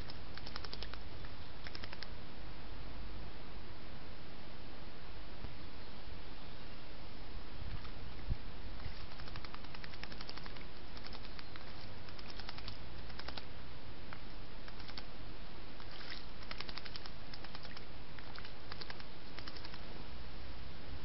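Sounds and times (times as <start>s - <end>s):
bird splashing water: 8.8s - 13.5s, 15.8s - 19.8s.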